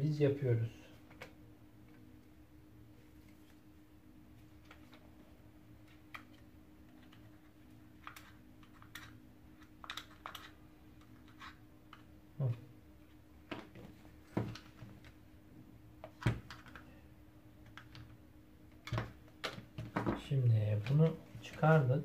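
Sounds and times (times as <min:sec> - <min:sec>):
plastic parts clicking and knocking: 0:08.0 - 0:12.1, 0:16.0 - 0:16.9, 0:18.7 - 0:20.2.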